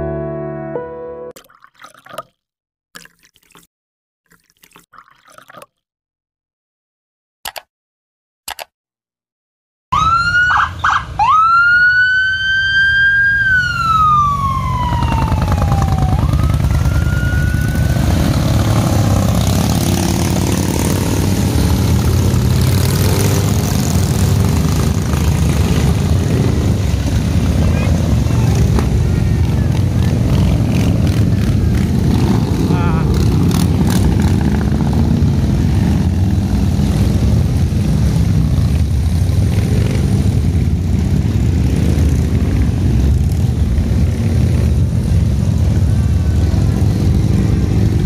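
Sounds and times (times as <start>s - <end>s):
police siren: 9.9s - 19.2s
motorcycles riding past: 11.5s - 48.0s.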